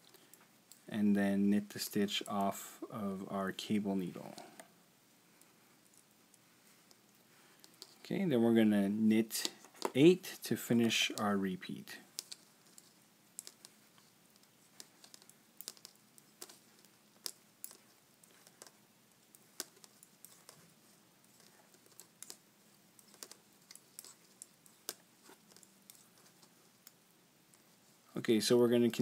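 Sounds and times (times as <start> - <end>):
metal knitting needles clicking: 12.1 - 27.6.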